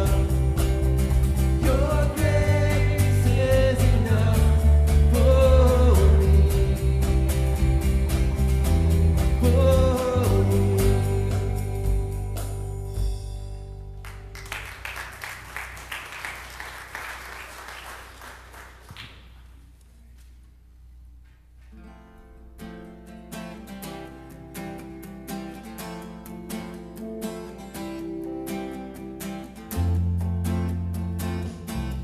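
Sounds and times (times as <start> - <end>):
guitar picking: 0.0 - 14.4, 21.6 - 32.0
congregation applauding: 14.0 - 19.6.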